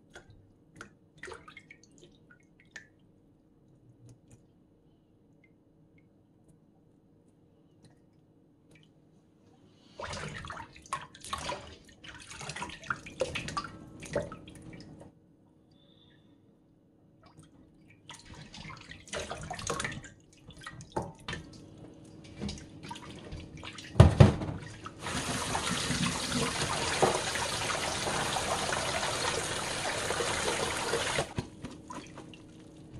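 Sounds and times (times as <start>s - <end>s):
water splashing in metal bowl: 25.0s - 32.2s.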